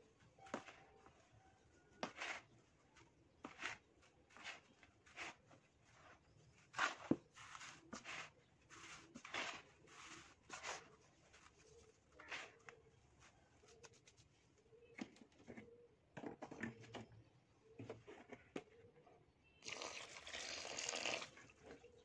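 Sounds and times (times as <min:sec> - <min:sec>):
sand pouring into plastic tub: 0:03.5 - 0:10.8.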